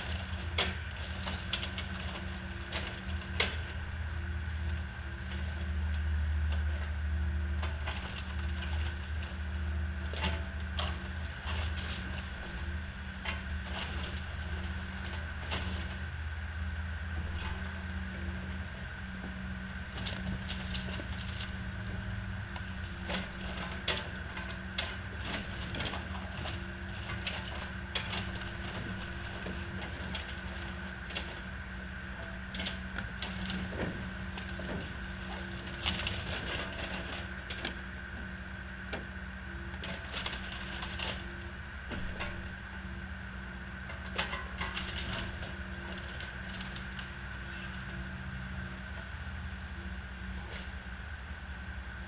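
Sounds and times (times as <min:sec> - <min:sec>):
wood cracking and splintering: 0:00.0 - 0:03.6, 0:19.9 - 0:21.7, 0:22.5 - 0:31.4, 0:32.5 - 0:37.7, 0:39.8 - 0:41.3, 0:44.2 - 0:47.1
excavator engine running: 0:00.0 - 0:52.0.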